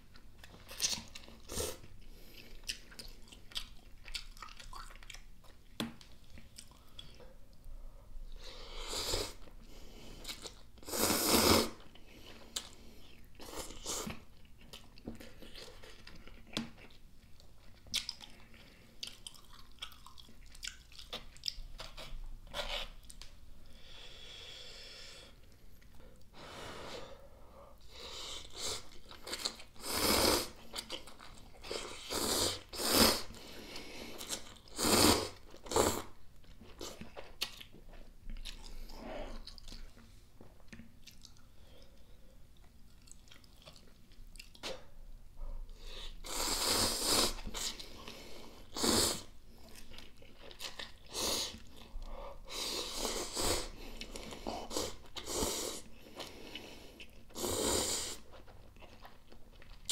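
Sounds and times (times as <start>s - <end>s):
chewing: 0.1s - 7.3s, 11.8s - 23.3s, 36.4s - 44.8s, 49.6s - 52.0s, 58.1s - 59.9s.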